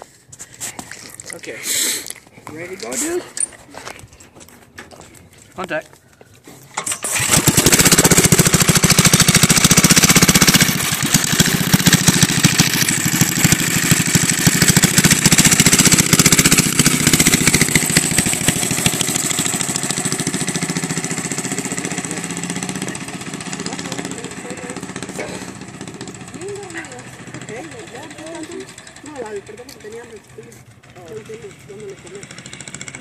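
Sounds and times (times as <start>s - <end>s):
go-kart engine starting and running: 6.7s - 33.0s.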